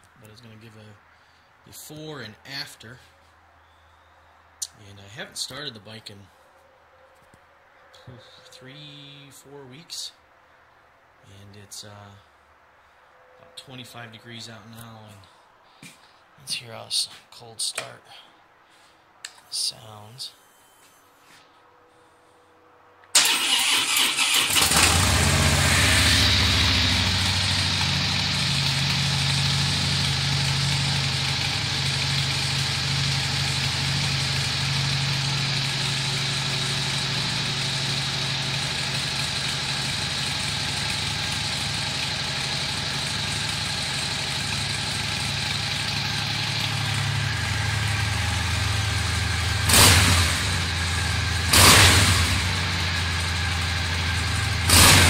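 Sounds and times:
motorcycle engine revving: 23.2s - 55.0s
motorcycle engine idling: 24.6s - 55.0s.

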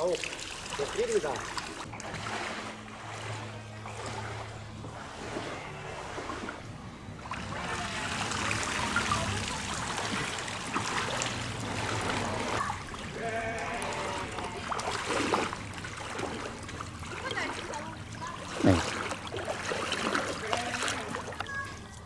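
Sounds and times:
footsteps sloshing through water: 0.0s - 22.0s.

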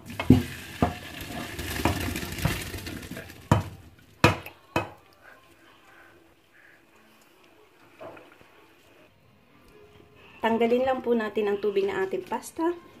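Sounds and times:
pot clanking against sink: 0.0s - 2.8s
water gushing into colander: 0.0s - 4.1s.

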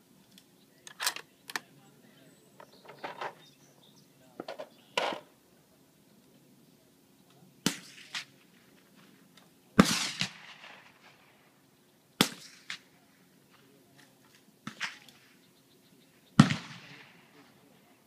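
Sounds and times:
rifle gunshots with echo: 7.6s - 8.4s, 9.8s - 11.6s, 12.2s - 12.9s, 16.4s - 17.6s.

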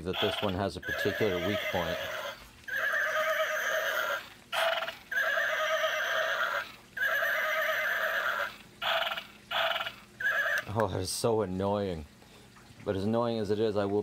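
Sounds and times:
toy horse neigh from small speaker: 0.2s - 10.7s.

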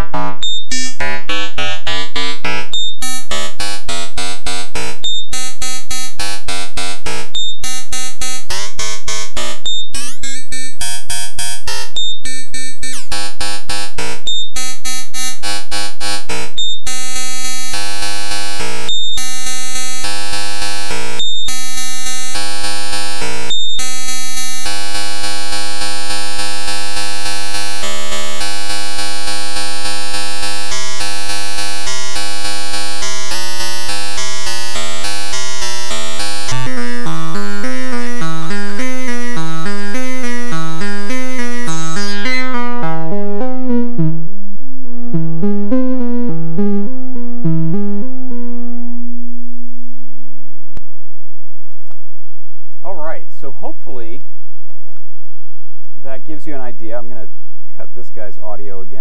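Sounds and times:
fast repeating synthesizer notes: 0.0s - 49.1s
held synthesizer tones: 0.0s - 49.1s.

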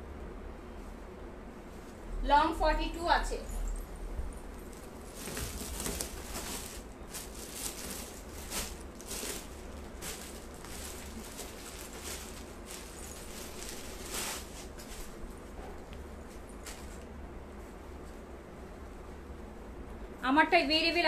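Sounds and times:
cloth rustling and swishing: 4.6s - 15.8s.

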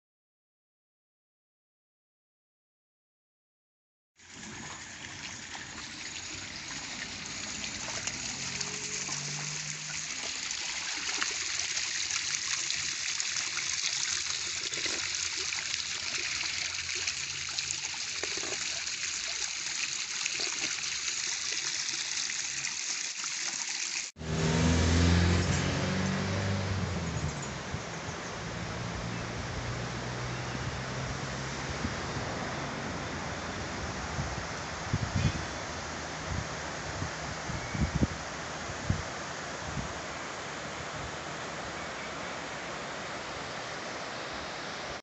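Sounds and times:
waterfall splashing onto stones: 4.2s - 24.4s.

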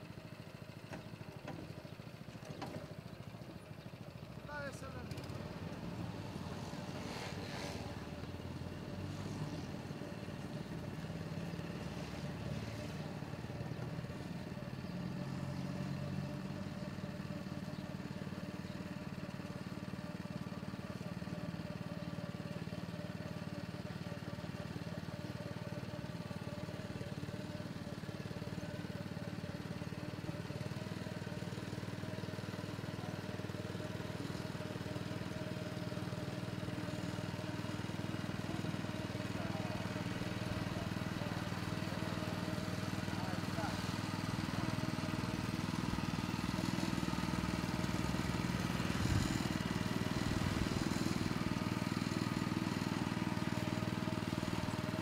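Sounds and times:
small motor humming: 30.1s - 55.0s.

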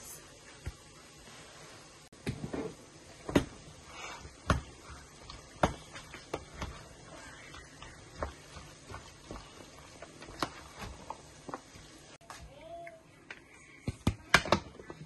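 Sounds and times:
food mixed by hand rustling: 2.7s - 12.2s.

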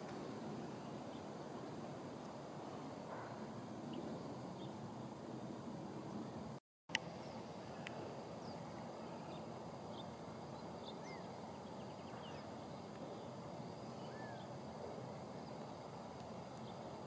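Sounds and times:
bird chirps: 8.4s - 14.5s.

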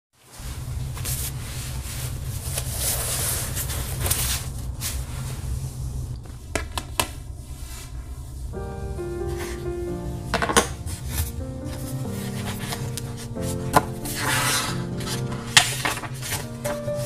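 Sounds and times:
steady low hum: 0.4s - 17.0s
notebook scraping across desk: 1.0s - 5.5s, 11.1s - 17.0s
piano music: 8.2s - 17.0s.

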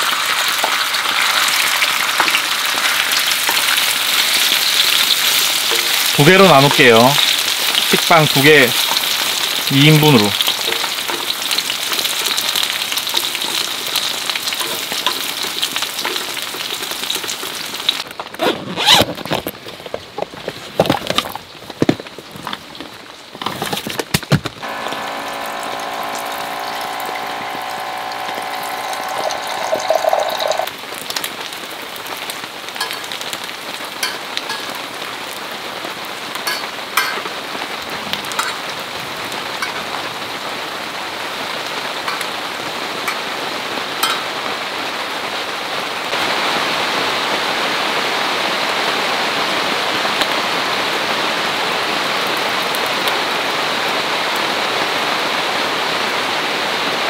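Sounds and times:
steady rain falling: 0.0s - 18.4s, 19.2s - 23.5s, 24.5s - 57.0s
humming tone: 24.6s - 30.7s.

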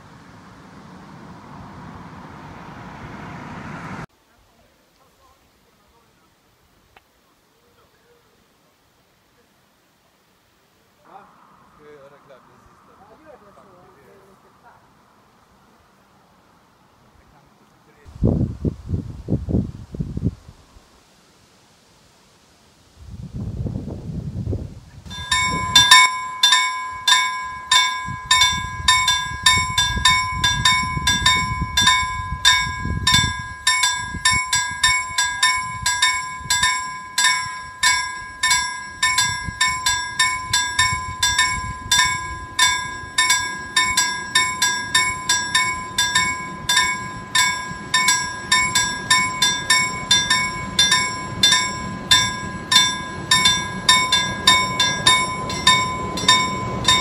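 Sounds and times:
railbus rumbling: 0.0s - 4.1s, 25.0s - 57.0s
level crossing warning bell: 25.1s - 57.0s.

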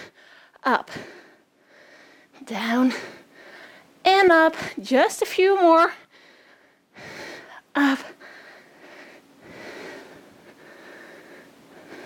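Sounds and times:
woman breathing hard: 0.0s - 4.0s, 6.0s - 12.0s.

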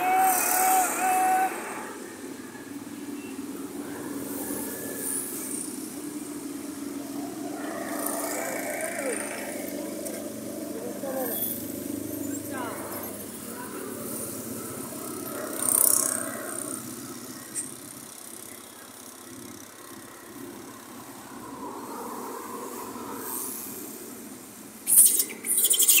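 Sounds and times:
distant traffic: 0.0s - 26.0s
high hissing rustle: 20.9s - 26.0s.

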